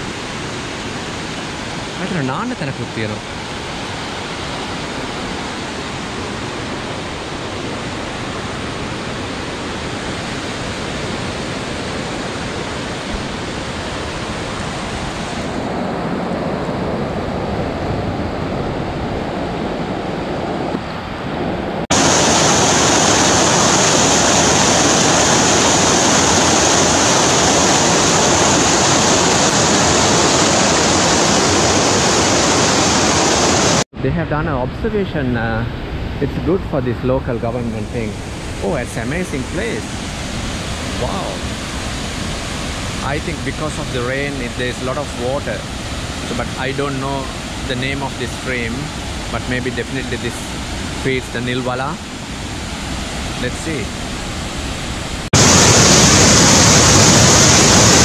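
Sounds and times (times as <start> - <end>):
stream rushing over rocks: 21.9 - 33.8, 38.0 - 58.0.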